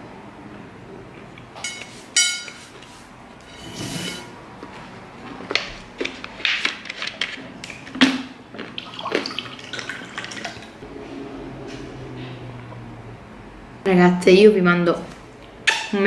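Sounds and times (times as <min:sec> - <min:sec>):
water pouring into a glass: 0:08.8 - 0:10.7.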